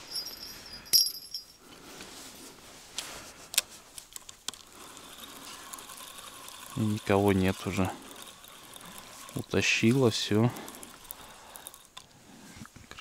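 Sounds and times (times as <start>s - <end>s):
fishing tackle clinking: 0.0s - 1.6s
faint ticks: 3.6s - 12.8s.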